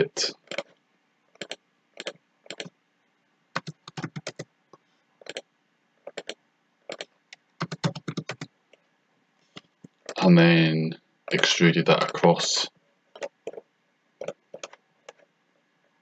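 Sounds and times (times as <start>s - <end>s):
keyboard typing: 0.4s - 0.7s, 1.4s - 2.7s, 3.6s - 4.5s, 5.2s - 5.4s, 6.0s - 8.5s, 11.3s - 12.3s, 13.2s - 13.6s, 14.2s - 15.2s.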